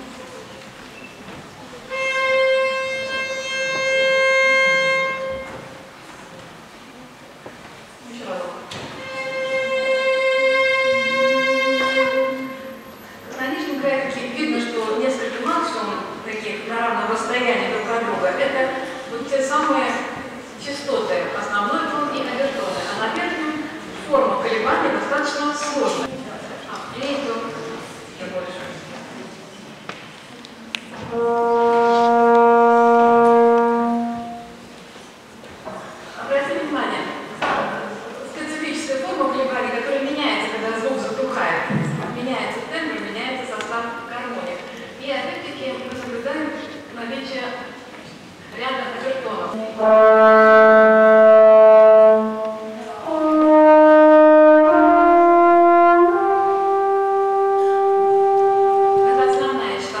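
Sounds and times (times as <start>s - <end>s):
sustained brass-like note: 1.9s - 5.9s, 9.0s - 12.9s, 31.1s - 34.7s, 49.6s - 59.6s.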